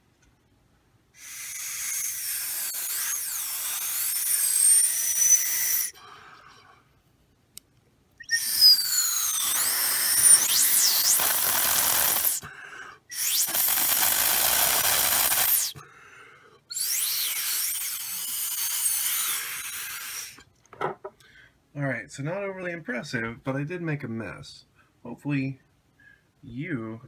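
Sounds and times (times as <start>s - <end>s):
air blowing through straw whistling: 1.2s - 6.0s, 8.2s - 12.5s, 13.1s - 15.8s, 16.7s - 20.4s.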